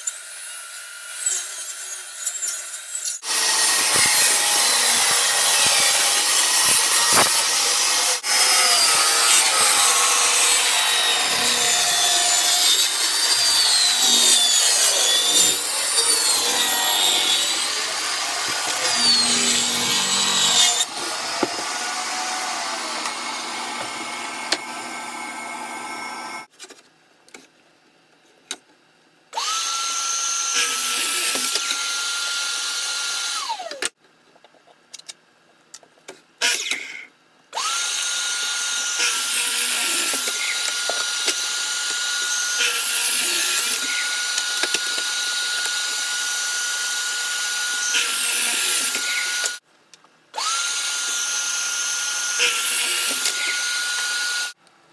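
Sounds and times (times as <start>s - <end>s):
table saw cutting wood: 0.0s - 26.5s, 29.4s - 34.0s, 37.6s - 49.6s, 50.4s - 54.6s
miter saw motor whine: 8.2s - 26.5s.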